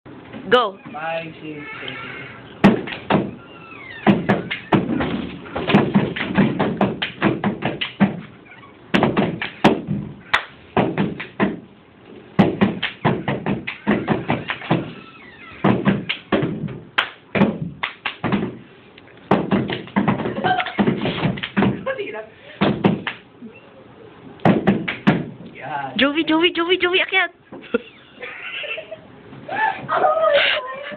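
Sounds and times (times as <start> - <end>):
hands tapping and slapping a tabletop: 5.6 - 8.2, 19.3 - 21.8.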